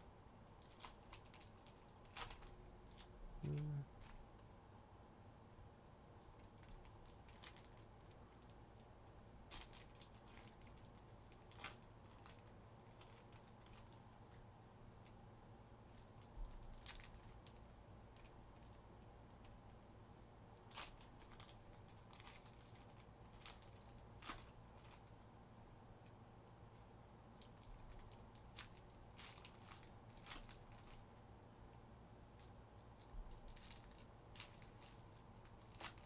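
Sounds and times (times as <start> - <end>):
low steady hum: 0.0 - 36.0
card packs crinkling: 0.6 - 3.6, 6.3 - 8.5, 9.5 - 14.0, 20.6 - 25.1, 26.7 - 31.1, 32.9 - 36.0.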